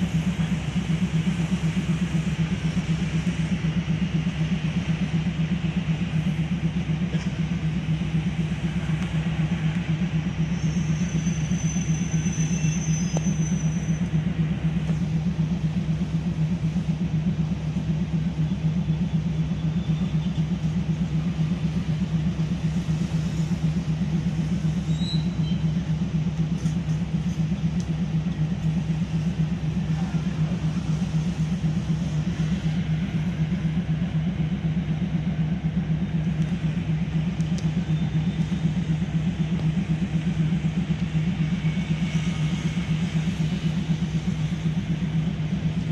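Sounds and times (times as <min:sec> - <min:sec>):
train engine hum: 0:00.0 - 0:45.9.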